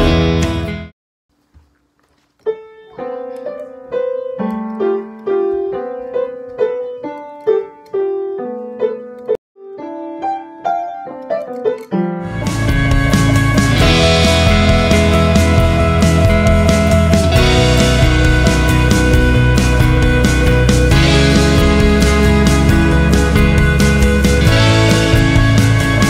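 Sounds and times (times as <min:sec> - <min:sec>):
background music: 0:00.0 - 0:00.9, 0:11.3 - 0:26.0
piano single notes: 0:02.4 - 0:26.0.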